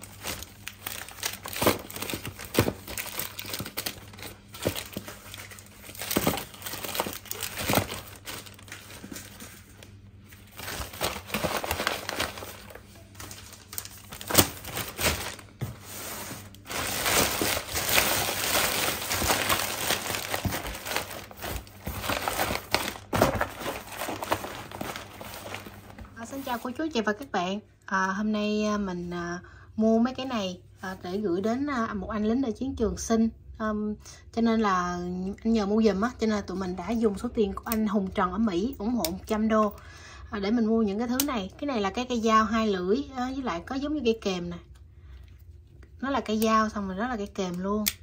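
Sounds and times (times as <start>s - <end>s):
plastic wrappers crinkling: 0.0s - 26.7s.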